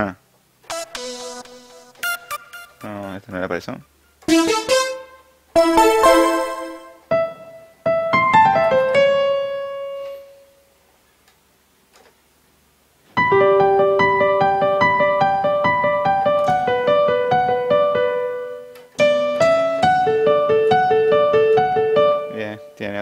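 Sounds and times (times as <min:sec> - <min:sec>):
sampled keyboard notes and chords: 0:00.7 - 0:03.1, 0:04.3 - 0:10.5, 0:13.2 - 0:22.7.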